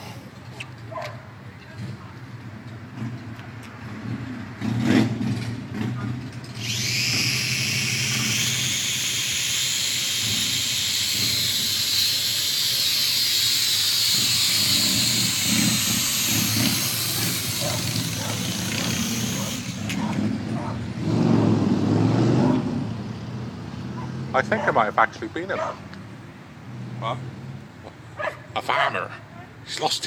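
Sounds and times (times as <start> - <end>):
toy drone propellers whirring: 6.5 - 20.4.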